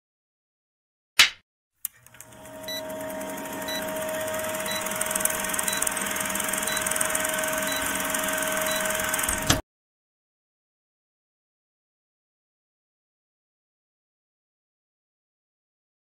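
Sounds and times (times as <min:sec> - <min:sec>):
projector click: 0:01.2 - 0:09.6
film projector whirring: 0:01.9 - 0:09.6.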